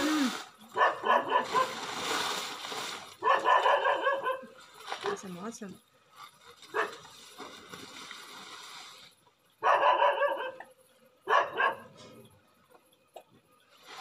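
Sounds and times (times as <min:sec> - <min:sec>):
dog barking: 0:00.8 - 0:01.8, 0:03.2 - 0:05.2, 0:06.7 - 0:07.0, 0:09.6 - 0:12.0.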